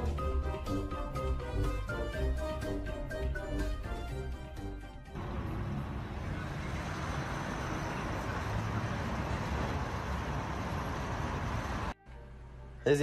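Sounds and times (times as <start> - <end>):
road traffic: 4.3 - 12.9.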